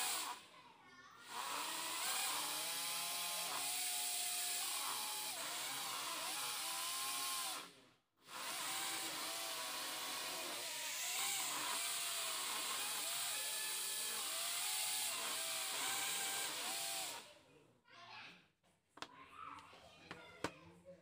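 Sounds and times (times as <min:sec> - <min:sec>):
small electric motors whining: 0:00.0 - 0:00.5, 0:01.2 - 0:17.3.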